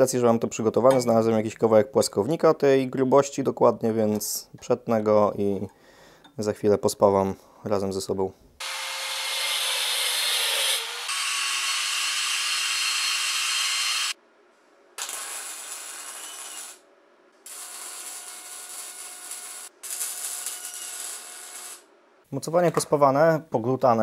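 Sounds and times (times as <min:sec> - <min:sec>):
angle grinder cutting steel: 0:08.6 - 0:14.2, 0:15.0 - 0:16.8
welding crackle: 0:15.0 - 0:16.8, 0:17.4 - 0:21.9.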